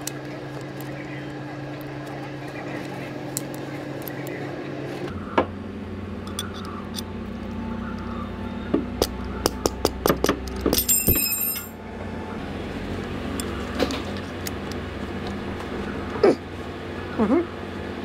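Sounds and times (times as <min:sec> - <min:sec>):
tool striking metal ring: 0:09.6 - 0:11.8.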